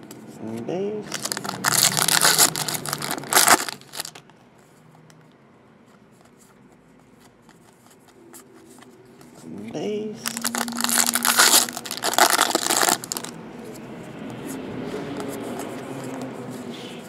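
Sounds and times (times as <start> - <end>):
foil wrapper tearing and crinkling: 1.1 - 4.2, 10.2 - 13.3
cards flipping with soft ticks: 4.0 - 9.5, 13.0 - 16.8.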